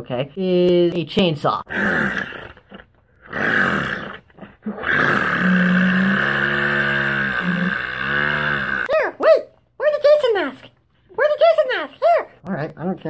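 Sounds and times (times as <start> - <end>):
mouth imitating a chainsaw: 1.7 - 9.1.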